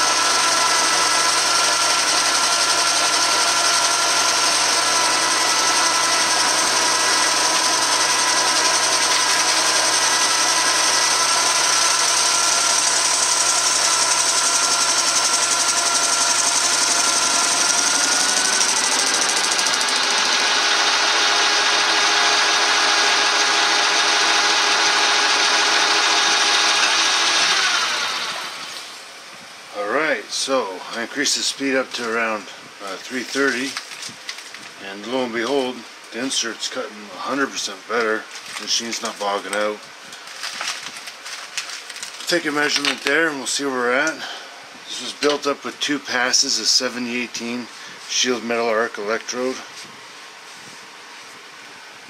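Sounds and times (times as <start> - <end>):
metal lathe running: 0.0 - 29.0.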